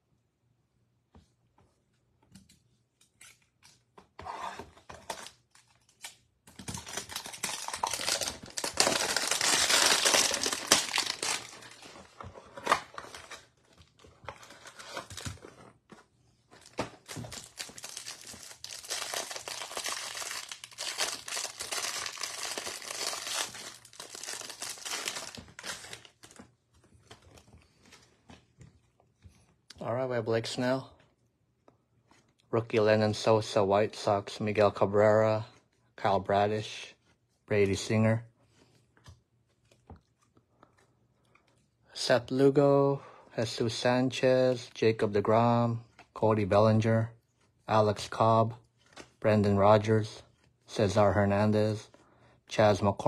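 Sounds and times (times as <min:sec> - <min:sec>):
light handling of cards: 0:01.1 - 0:29.8, 0:48.7 - 0:49.2
packaging tearing and crinkling: 0:05.0 - 0:13.5, 0:16.6 - 0:26.4.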